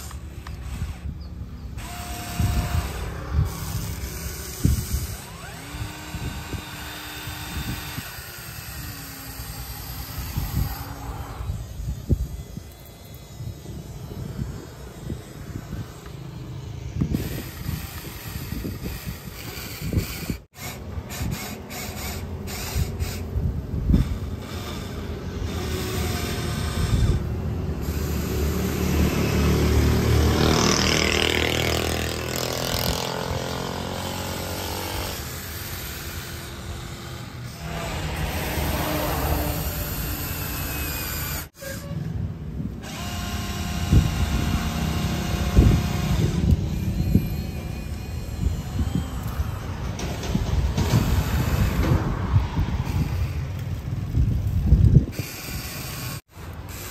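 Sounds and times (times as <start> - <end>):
toy excavator motors whirring: 0.0 - 56.9
clunks and rattles: 49.1 - 52.2.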